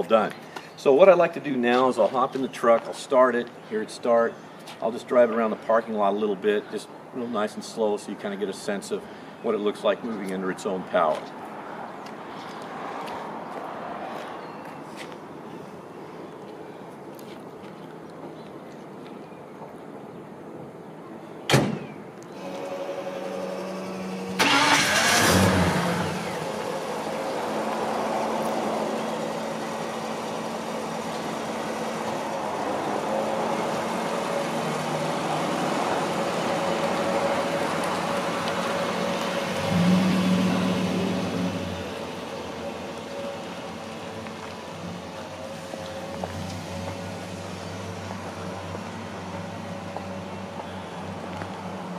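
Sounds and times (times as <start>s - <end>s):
vee eight engine revving: 22.4s - 45.0s.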